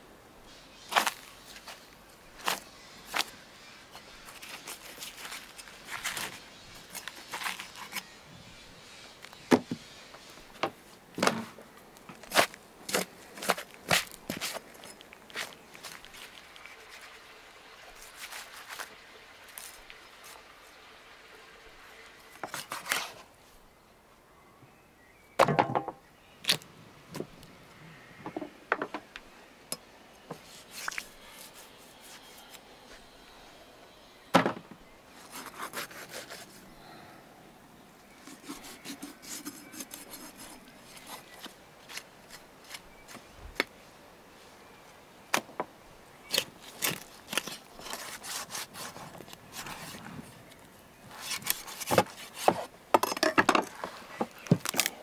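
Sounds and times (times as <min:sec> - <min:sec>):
knife scraping and slicing meat: 0:35.3 - 0:36.6, 0:38.2 - 0:41.4, 0:46.3 - 0:50.0.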